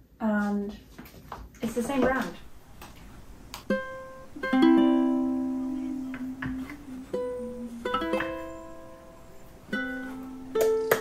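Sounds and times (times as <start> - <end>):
plucked string melody: 3.6 - 11.0.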